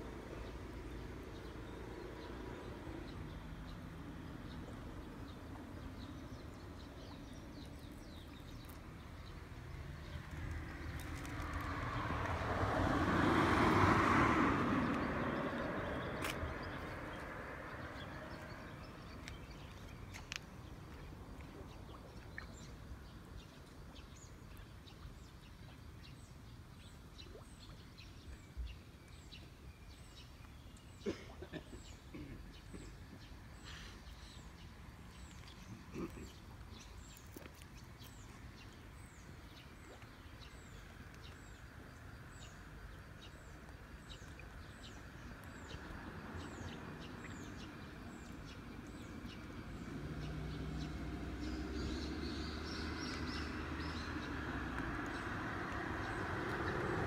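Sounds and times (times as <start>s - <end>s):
small birds chirping: 2.6s - 12.0s, 14.8s - 57.0s
road vehicle passing: 8.8s - 19.2s, 40.5s - 57.0s.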